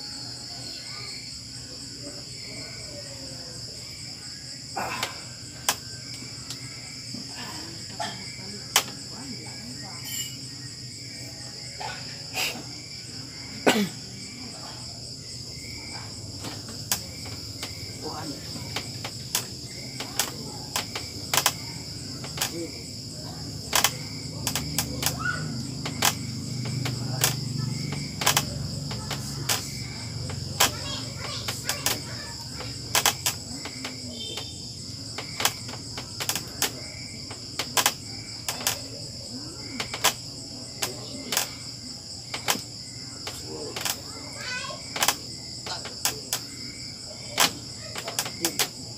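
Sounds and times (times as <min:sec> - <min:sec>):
crickets chirping: 0:00.0 - 0:48.9
sharp clicks or taps: 0:25.8 - 0:29.7.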